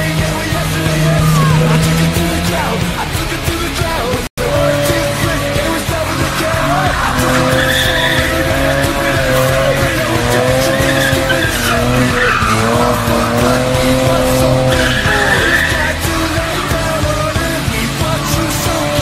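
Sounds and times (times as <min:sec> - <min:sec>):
car engine revving: 0:00.0 - 0:19.0
tyres squealing on tarmac: 0:00.0 - 0:19.0.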